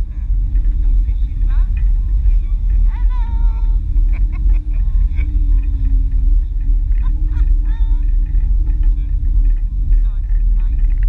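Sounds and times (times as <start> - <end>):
faint wavering tone: 0.0 - 11.0
wind buffeting microphone: 0.0 - 11.0.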